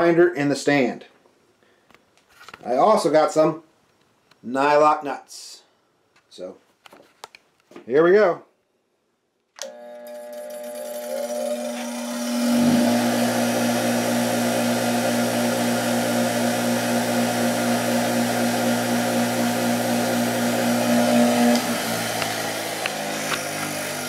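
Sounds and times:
bench grinder running: 9.6 - 24.0.

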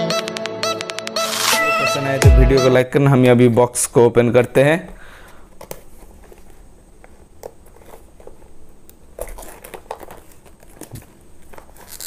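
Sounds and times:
plastic wrapping crinkling: 5.8 - 12.0.

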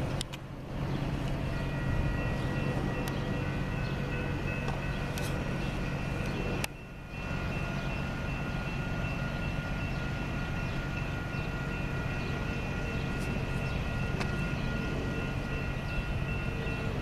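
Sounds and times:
diesel train engine hum: 0.0 - 17.0.

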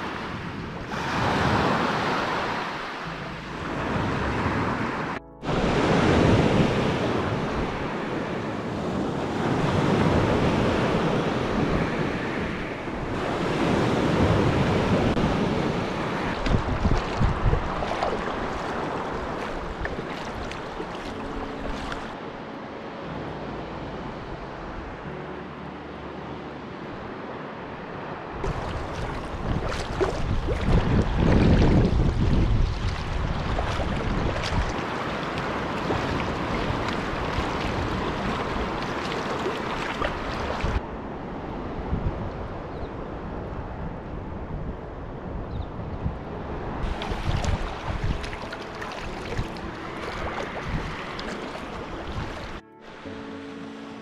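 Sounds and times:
waves washing onto pebbles: 0.0 - 3.1, 13.1 - 22.2, 28.4 - 40.8, 46.8 - 52.6
wind on microphone: 0.0 - 22.2, 28.3 - 52.6
water lapping along hull: 13.0 - 22.2, 28.4 - 40.8, 46.8 - 52.6
kayak paddle splashing: 14.1 - 22.2, 28.4 - 40.8, 46.8 - 52.6.

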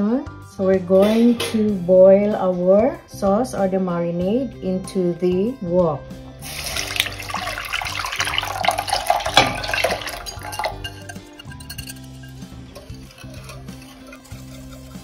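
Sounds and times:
liquid pouring into a wok: 6.4 - 14.3.

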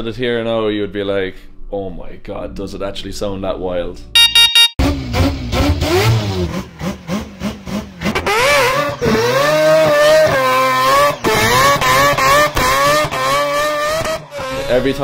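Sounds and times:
throttle blips: 4.2 - 4.8
rotary engine revving hard: 4.8 - 15.0.

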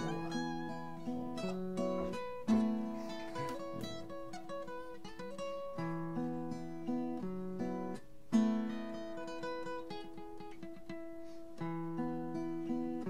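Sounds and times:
strummed guitar chord: 0.0 - 5.0
acoustic guitar picking chords: 0.0 - 13.0.

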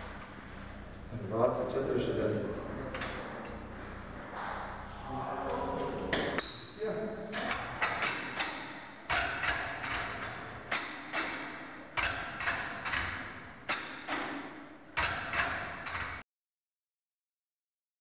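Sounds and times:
metal weights clanking: 7.3 - 16.2.

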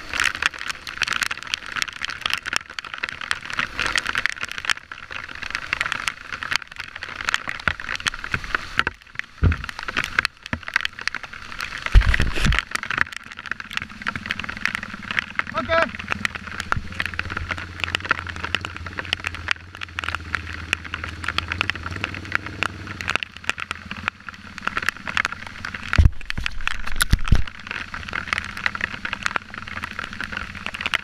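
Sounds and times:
wind noise: 11.8 - 12.6, 26.0 - 27.7
dirt bike engine: 13.2 - 31.0.

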